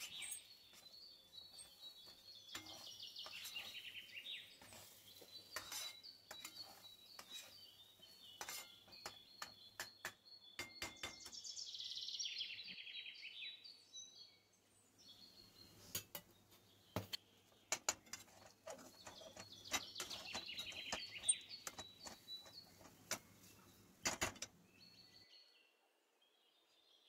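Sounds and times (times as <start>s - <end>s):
recorded birdsong chirping: 0.0s - 27.0s
metal spatula scraping a pan: 2.5s - 11.0s.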